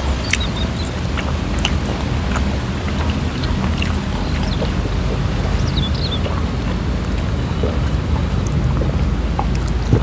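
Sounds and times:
chewing and lip-smacking: 0.0s - 10.0s
wind on microphone: 0.0s - 10.0s
bird chirps: 5.3s - 6.4s.

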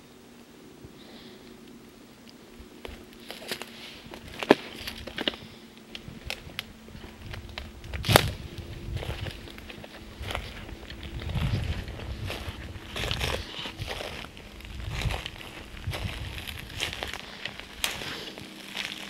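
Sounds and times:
twigs snapping: 1.4s - 19.0s
footsteps crunching through leaves: 2.6s - 19.0s.

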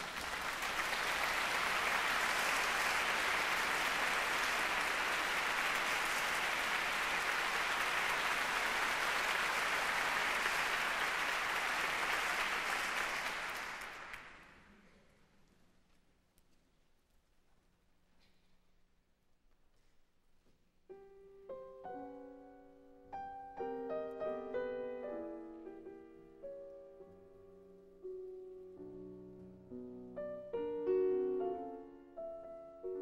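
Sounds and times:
audience applauding: 0.0s - 14.7s.

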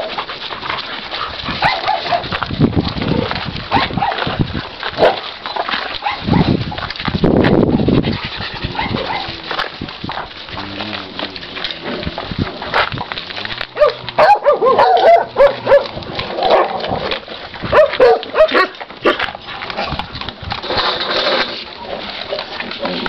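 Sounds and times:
dogs yipping and whining: 0.0s - 2.4s, 5.0s - 6.6s, 8.2s - 11.8s, 13.7s - 18.8s
clicks and rustling: 0.0s - 23.0s.

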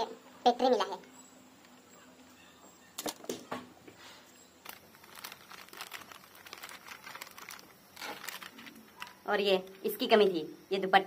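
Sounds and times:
plastic packet crinkling: 4.6s - 9.2s.

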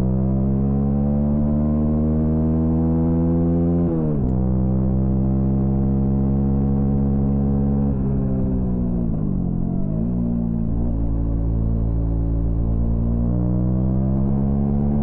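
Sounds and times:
motorcycle engine revving: 9.4s - 15.0s.

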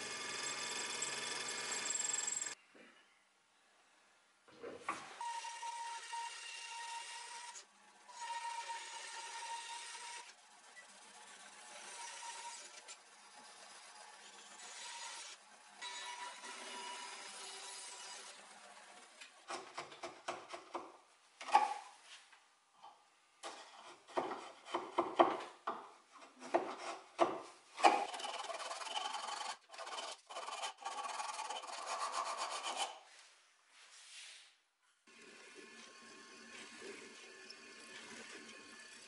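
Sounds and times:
band saw running: 0.0s - 2.6s
chisel scraping wood: 23.4s - 33.0s.

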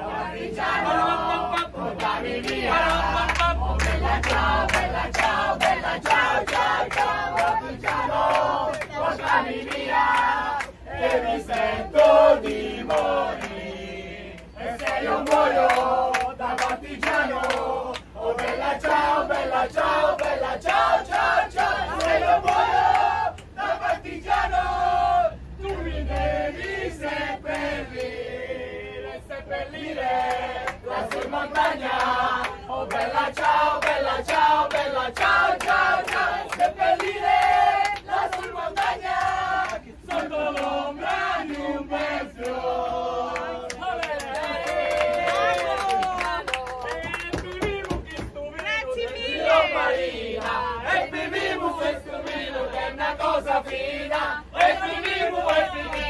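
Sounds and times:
crowd singing in chorus: 0.0s - 46.6s, 47.7s - 56.0s
hand claps: 14.4s - 18.6s, 30.2s - 41.6s, 43.3s - 49.2s.

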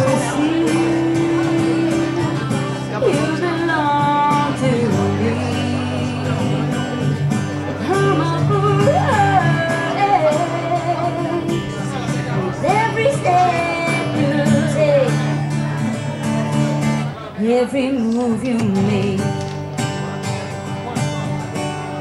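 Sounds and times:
woman singing: 0.0s - 7.2s, 7.8s - 11.8s, 12.4s - 15.4s, 17.4s - 19.4s
strummed acoustic guitar: 0.0s - 22.0s.

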